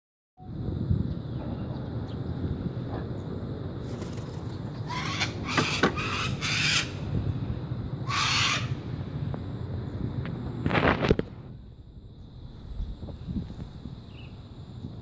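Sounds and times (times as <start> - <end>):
cockatoo screeching: 4.8 - 7.1, 8.0 - 8.8.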